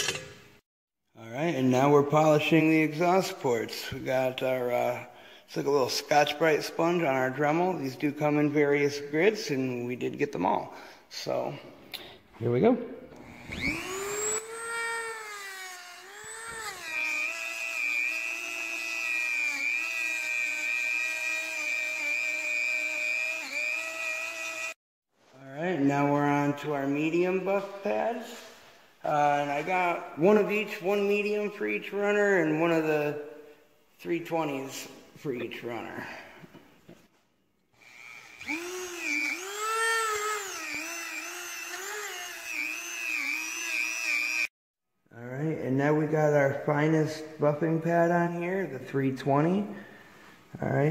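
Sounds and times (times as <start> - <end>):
rotary tool high-pitched whine: 13.2 - 24.8, 37.8 - 44.5.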